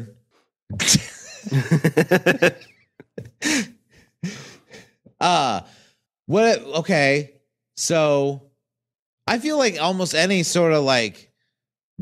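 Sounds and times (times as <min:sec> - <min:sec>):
man laughing: 0:00.8 - 0:03.8.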